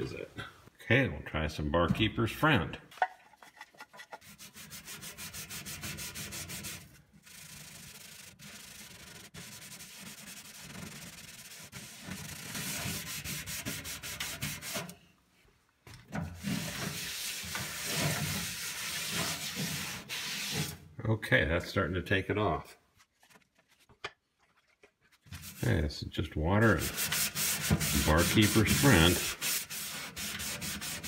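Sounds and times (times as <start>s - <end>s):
sponge scrubbing metal: 3.3s - 15.0s, 16.1s - 20.8s, 23.4s - 31.0s.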